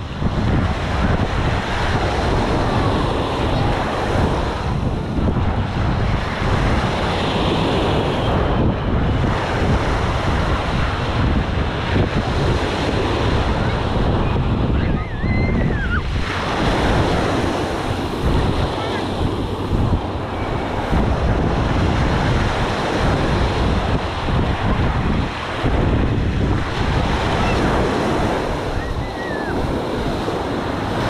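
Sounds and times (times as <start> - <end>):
small waves breaking on shore: 0.0 - 31.0
wind buffeting microphone: 0.0 - 31.0
wavering high call: 28.8 - 29.6.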